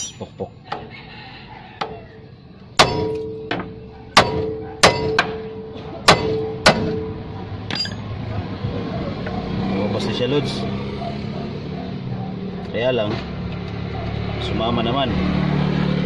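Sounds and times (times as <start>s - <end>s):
hammer striking metal: 0.0s - 0.9s, 2.8s - 8.1s.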